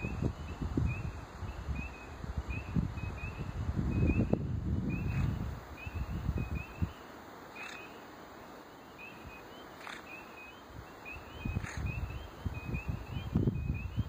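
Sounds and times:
low rumbling on microphone: 0.0 - 6.8
frogs peeping: 0.1 - 14.0.

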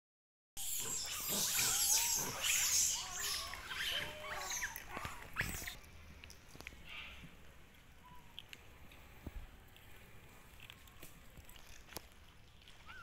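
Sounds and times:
monkeys squeaky calls: 0.6 - 5.8.

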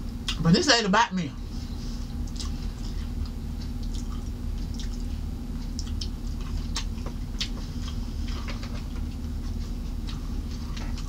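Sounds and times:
steady low hum: 0.0 - 11.0
person chewing crunchy food: 2.0 - 11.0
wet mouth clicks: 2.2 - 2.6, 5.7 - 7.6.

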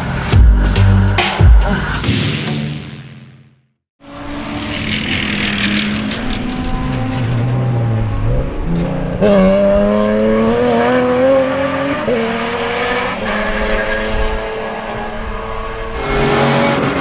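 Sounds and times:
racing car engine accelerating: 4.0 - 17.0.

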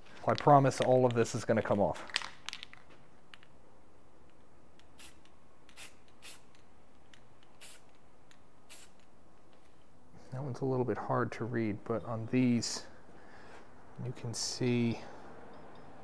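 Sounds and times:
aerosol spray can hissing: 5.0 - 6.5, 7.6 - 7.9, 8.7 - 9.0.

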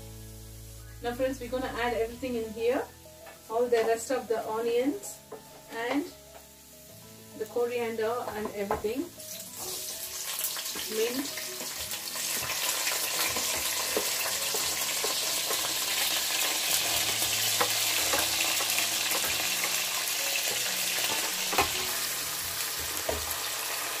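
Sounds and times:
vegetables sizzling in hot oil: 0.0 - 24.0
wooden spatula scraping wok: 5.2 - 6.6, 7.5 - 24.0.

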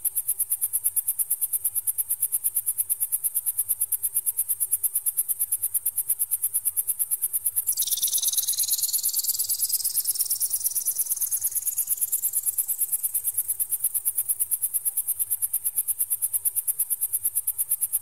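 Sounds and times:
rapid pulsing electronic beep: 7.8 - 12.6.

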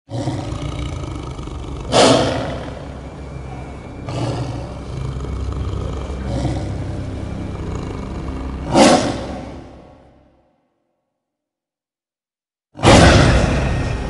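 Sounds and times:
big animal roaring: 0.1 - 10.4.

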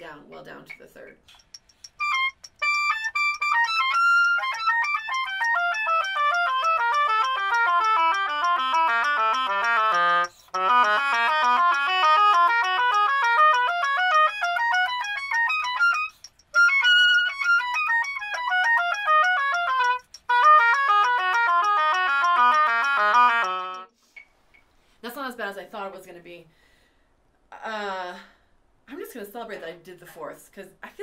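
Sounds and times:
bassoon playing scales: 2.0 - 24.0.

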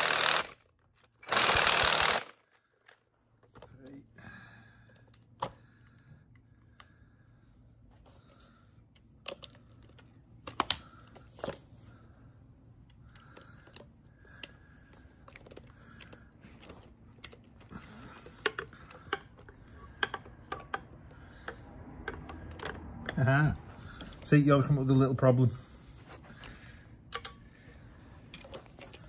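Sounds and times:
hand ratchet clicking: 0.0 - 2.4.

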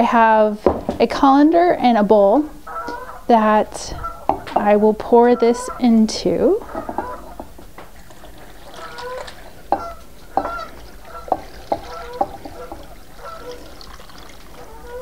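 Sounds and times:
fowl honking: 2.6 - 15.0
water trickling into colander: 4.2 - 15.0.

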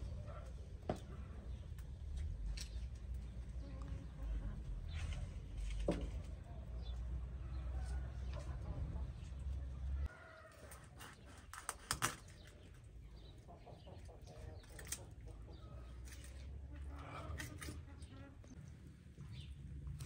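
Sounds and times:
chickens clucking: 6.4 - 11.3, 12.5 - 18.5.

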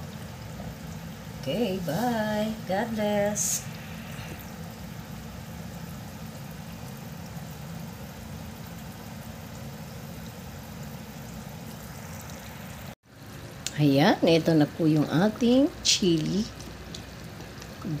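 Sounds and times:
sauce bubbling in a metal pot: 3.0 - 15.8.

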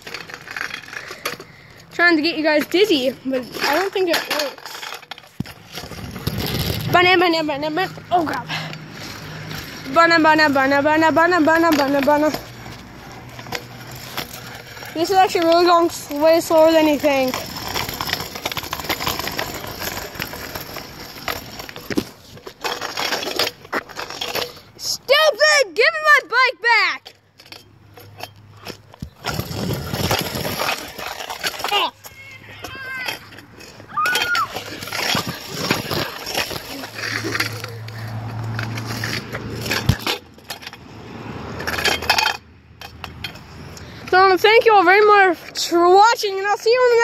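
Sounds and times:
bicycle rolling over rough asphalt: 0.0 - 47.0.

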